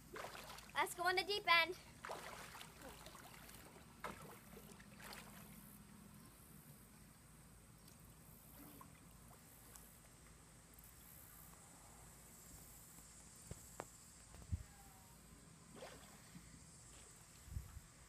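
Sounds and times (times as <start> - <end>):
faint splashes of child swimming: 0.0 - 6.0, 7.8 - 10.4, 14.6 - 17.8.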